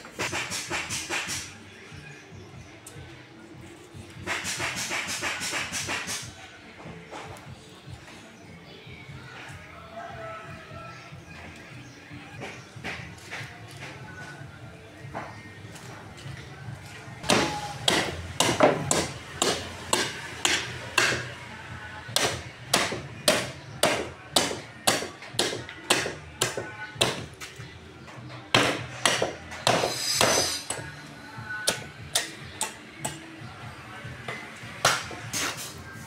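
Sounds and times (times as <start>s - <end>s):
cleaver chopping bones on wood: 17.2s - 21.3s, 22.2s - 27.4s, 28.5s - 30.8s, 34.8s - 35.2s.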